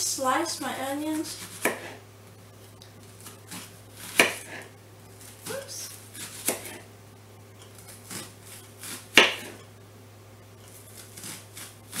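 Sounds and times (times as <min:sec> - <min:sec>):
knife cutting onto board: 0:01.4 - 0:02.0, 0:10.9 - 0:12.0.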